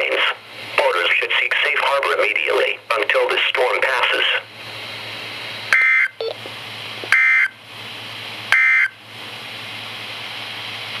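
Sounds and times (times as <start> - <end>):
radio hiss: 0.0 - 4.5.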